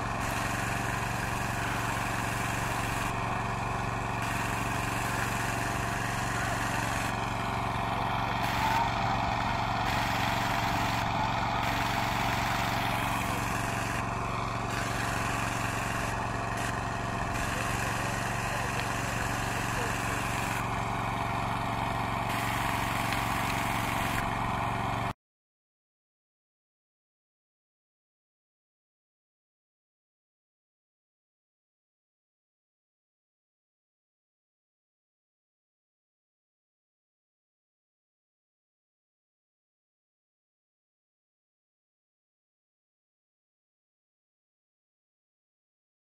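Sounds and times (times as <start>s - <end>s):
engine running steadily: 0.0s - 25.1s.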